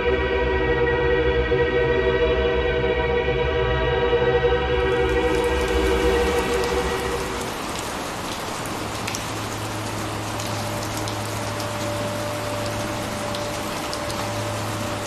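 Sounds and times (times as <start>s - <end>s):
sustained music tones: 0.2s - 15.0s
rain falling: 4.8s - 15.0s
raindrop ticks: 4.8s - 15.0s.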